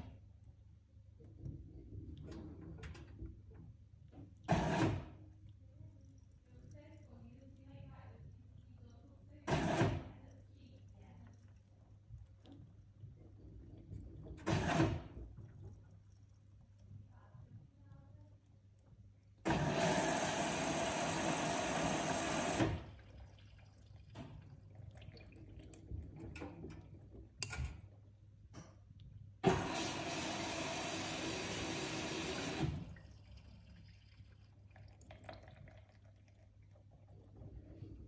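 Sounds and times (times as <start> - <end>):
water rushing into washing machine: 0.0 - 0.4, 1.1 - 5.5, 9.4 - 10.3, 10.9 - 16.9, 19.3 - 28.0, 29.4 - 38.0
water sloshing in drum: 22.6 - 28.1.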